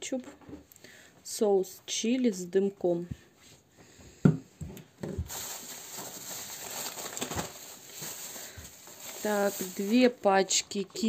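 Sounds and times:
plastic bags rustling: 5.1s - 11.0s.

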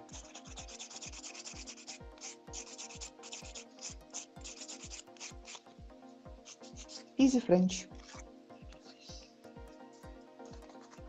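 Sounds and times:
nail file rasping: 0.0s - 5.6s, 6.4s - 7.1s.

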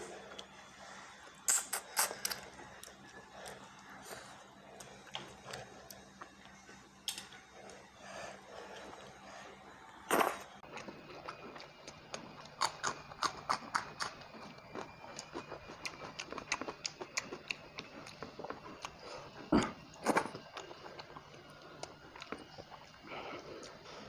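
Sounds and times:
chewing: 10.1s - 24.0s.

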